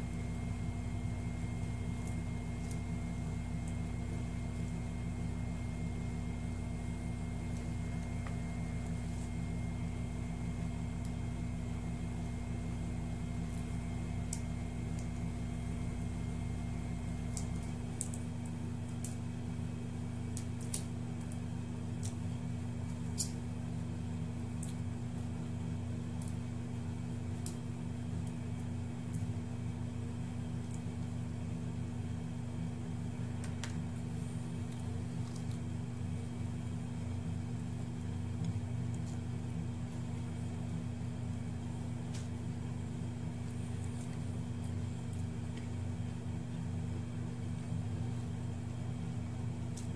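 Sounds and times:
steady mechanical hum: 0.0s - 49.9s
faint clicks from peeling shrimp: 1.4s - 4.0s, 13.3s - 15.3s, 17.2s - 19.3s, 20.3s - 23.5s, 24.5s - 25.4s, 26.0s - 26.5s, 27.3s - 29.3s, 34.6s - 35.8s, 42.0s - 42.4s, 49.7s - 49.9s.

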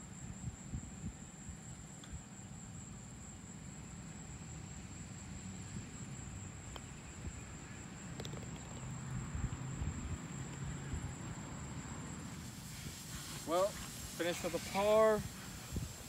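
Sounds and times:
putter striking golf ball: 8.2s - 8.8s
golf ball dropping into cup: 8.2s - 8.9s.

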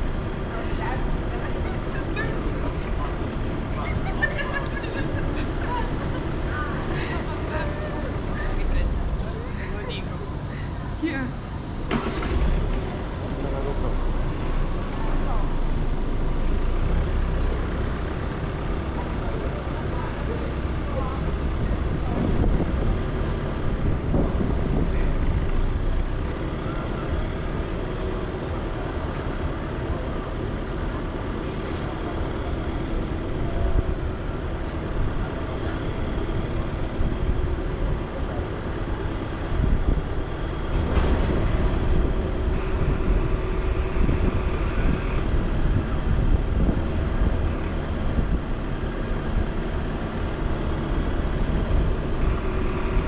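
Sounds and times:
car driving: 0.0s - 53.0s.

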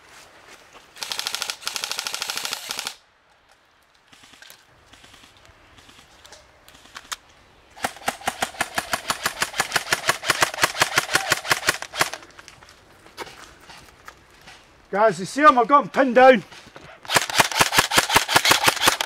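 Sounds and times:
airsoft rifle full-auto burst: 1.0s - 3.0s, 7.8s - 12.2s, 17.1s - 19.0s.

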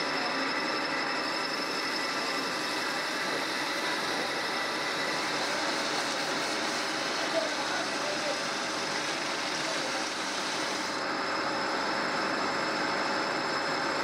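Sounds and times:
metal lathe humming and whining: 0.0s - 14.0s
abrasive cloth hissing on shaft: 1.5s - 11.0s.

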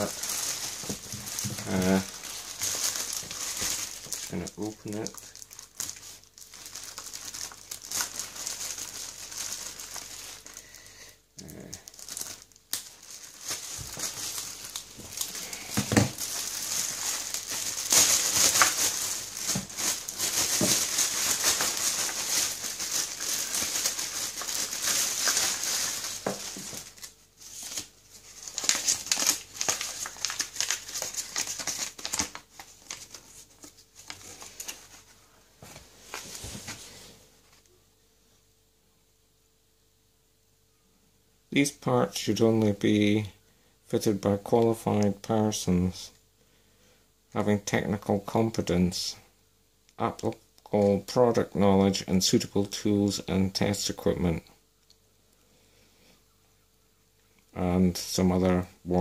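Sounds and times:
plastic packaging crinkling: 0.0s - 10.8s, 11.4s - 36.9s.

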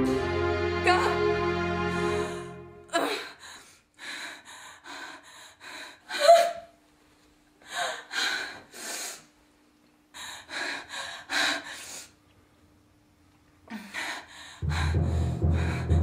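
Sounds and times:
woman gasping and panting: 3.0s - 6.7s, 7.6s - 9.2s.

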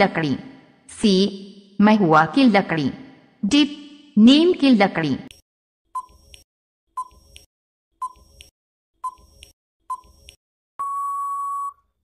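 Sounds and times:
long steady beep: 10.8s - 11.8s.

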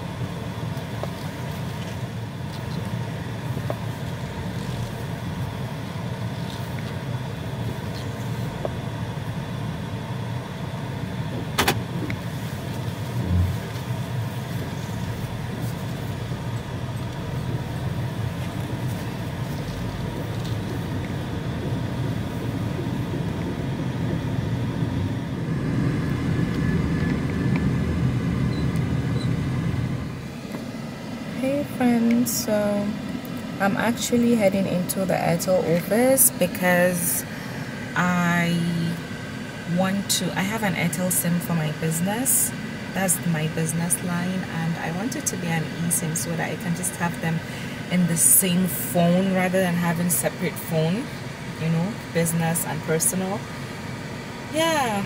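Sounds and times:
car engine and road rumble: 0.0s - 55.0s
short low thud: 13.2s - 13.6s.

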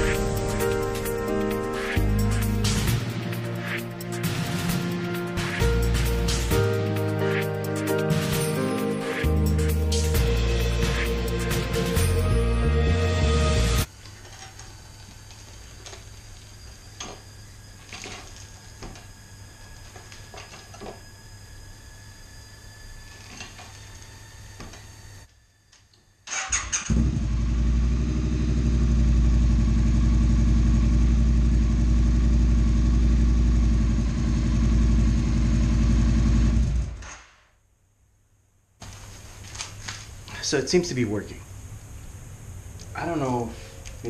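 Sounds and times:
motorcycle engine starting and idling: 26.2s - 37.2s.

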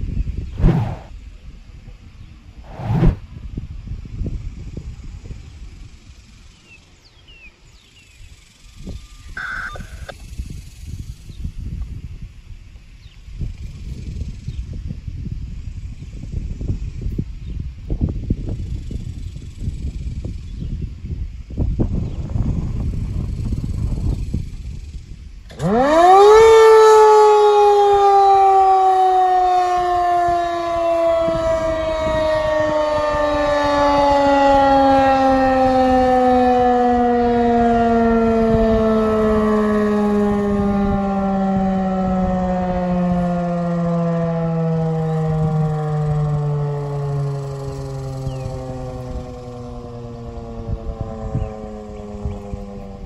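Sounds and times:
wind rumble on microphone: 0.0s - 53.0s
bird whistled calls: 9.0s - 10.1s
electromechanical siren growl: 9.4s - 10.1s, 25.5s - 53.0s.

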